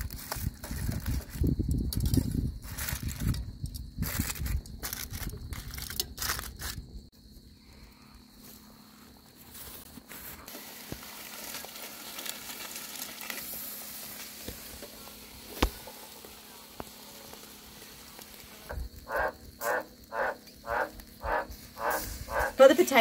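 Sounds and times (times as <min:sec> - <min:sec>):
meat sizzling on grill: 0:10.2 - 0:23.0
campfire crackling and popping: 0:10.5 - 0:23.0
frog croaking: 0:18.6 - 0:23.0.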